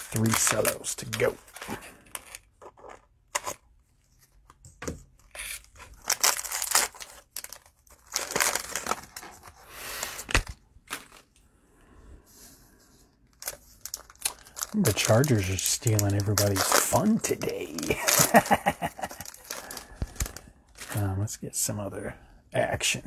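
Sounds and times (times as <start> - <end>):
cellophane tearing and rustling: 0.0 - 3.6, 5.2 - 11.3, 13.3 - 21.0.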